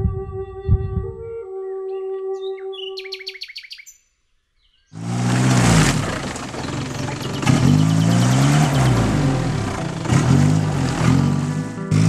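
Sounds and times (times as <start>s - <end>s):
engine revving: 5.0s - 12.0s
tyres churning mud: 5.0s - 12.0s.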